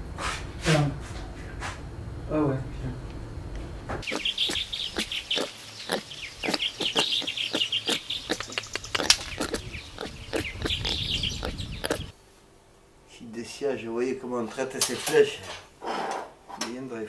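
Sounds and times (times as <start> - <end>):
animal chirps and clicks: 4.0 - 12.1.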